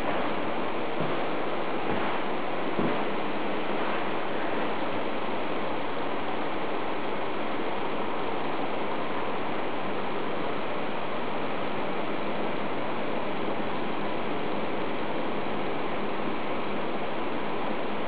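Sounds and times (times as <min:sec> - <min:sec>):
steady rushing noise: 0:00.0 - 0:18.0.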